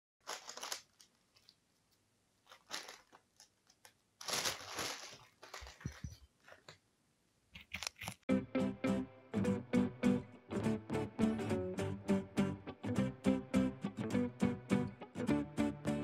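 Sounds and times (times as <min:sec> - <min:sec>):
rustling: 0:00.2 - 0:06.8.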